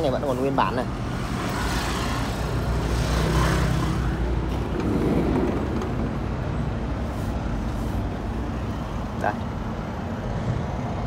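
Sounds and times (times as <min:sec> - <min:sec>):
low motor vehicle rumble: 0:02.2 - 0:09.2.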